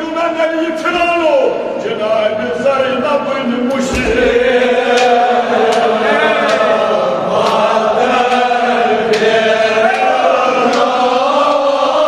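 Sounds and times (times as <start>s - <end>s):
men chanting a lament: 1.2s - 12.0s
sharp slaps: 7.4s - 7.7s, 9.1s - 11.0s.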